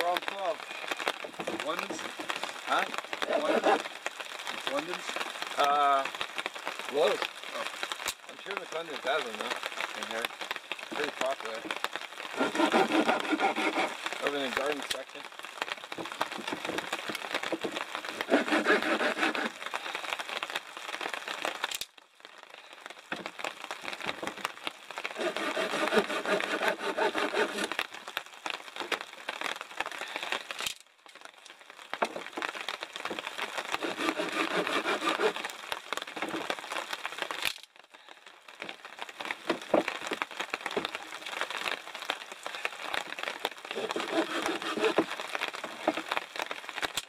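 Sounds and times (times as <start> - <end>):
pruning saw rasping through wood: 3.3 - 3.8, 12.4 - 14.0, 18.2 - 19.5, 25.2 - 27.7, 33.8 - 35.4, 43.8 - 45.1.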